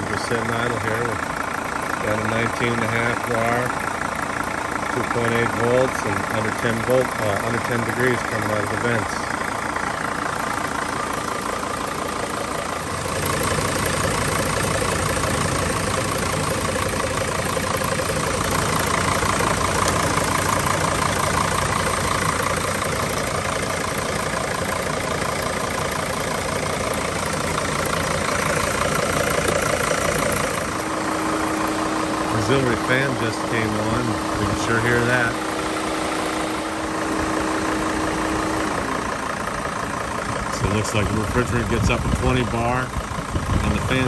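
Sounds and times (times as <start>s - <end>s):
diesel engine idling: 0.0s - 44.0s
radiator fan rushing: 40.2s - 44.0s.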